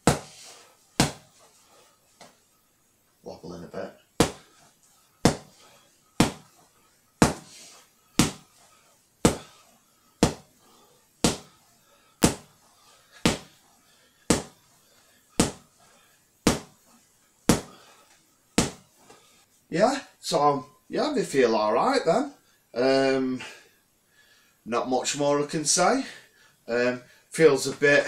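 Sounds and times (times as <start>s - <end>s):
gloves smacking punch bag: 0.0s - 1.4s, 4.2s - 4.6s, 5.2s - 5.6s, 6.2s - 6.6s, 7.2s - 7.6s, 8.2s - 8.6s, 9.2s - 9.6s, 10.2s - 10.5s, 11.2s - 11.5s, 12.2s - 12.6s, 13.2s - 13.6s, 14.3s - 14.6s, 15.4s - 15.7s, 16.4s - 16.8s, 17.5s - 17.8s, 18.6s - 18.9s.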